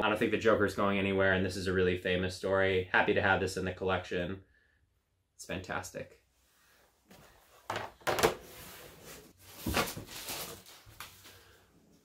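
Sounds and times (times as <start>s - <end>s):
shuffling and rubbing: 8.4s - 11.7s.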